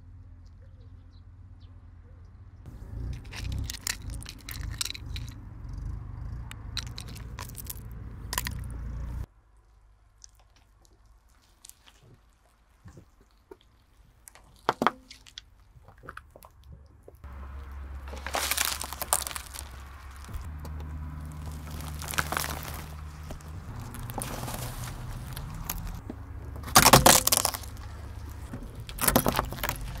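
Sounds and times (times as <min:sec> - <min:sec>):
car engine humming: 0:00.0 - 0:09.3, 0:17.2 - 0:30.0
stress balls squelching: 0:02.7 - 0:09.3, 0:10.0 - 0:30.0
toys crackling and squishing: 0:02.8 - 0:30.0.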